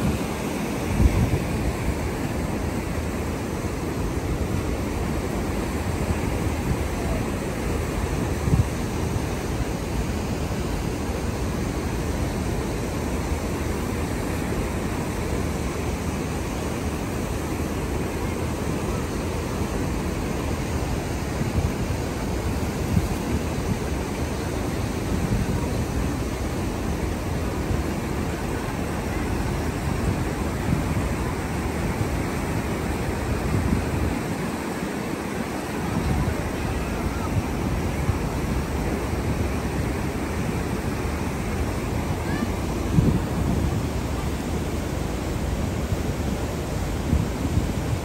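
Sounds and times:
water rushing over spillway: 0.0 - 48.0.

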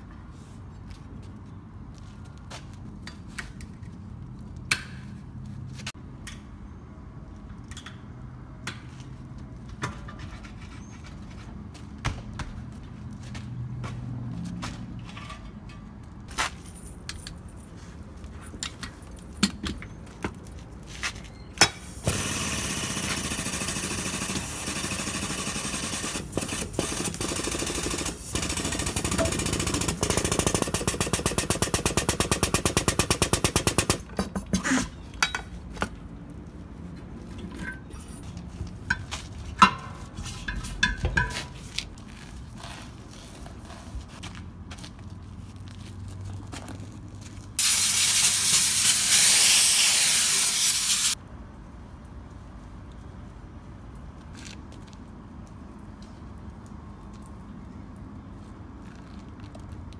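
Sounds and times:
metal tire tools clanking: 15.0 - 20.4, 28.9 - 36.0, 37.3 - 41.8
pneumatic bead breaker hissing: 47.6 - 51.2.

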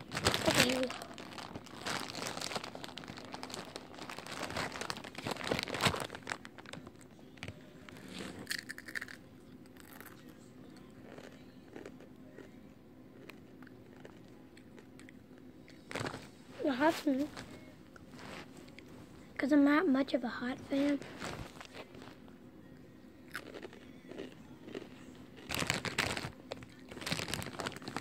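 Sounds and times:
chip bag crinkling: 0.0 - 9.2, 15.8 - 16.3, 20.9 - 22.2, 23.3 - 28.0
chips crunching: 0.0 - 10.3, 11.0 - 12.5, 13.2 - 16.3, 23.3 - 28.0.

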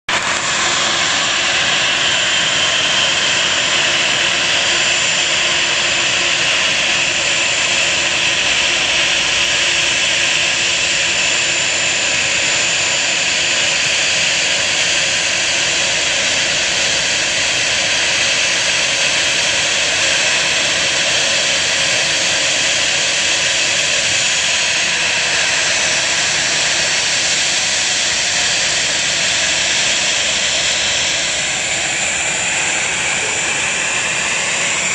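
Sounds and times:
high engine whine: 0.0 - 34.9
jet engines idling: 0.1 - 34.9.

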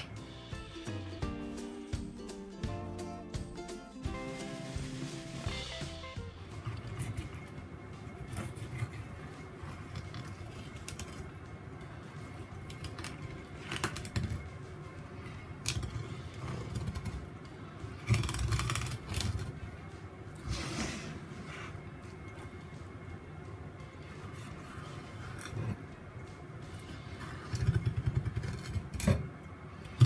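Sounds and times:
blade clicking on bone: 18.0 - 19.5.

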